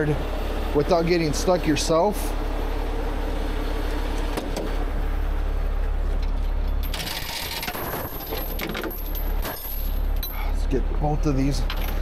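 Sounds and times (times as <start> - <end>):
diesel engine idling: 0.0 - 12.0
metal chains clinking: 6.6 - 10.6.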